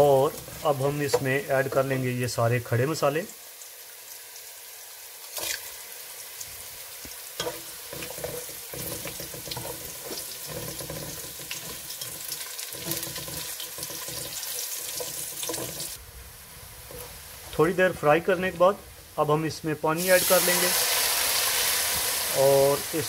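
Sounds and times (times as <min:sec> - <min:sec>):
stirring and scraping in pot: 0:00.0 - 0:01.8, 0:07.4 - 0:16.0, 0:16.8 - 0:17.6
onions sizzling in hot oil: 0:00.0 - 0:23.0.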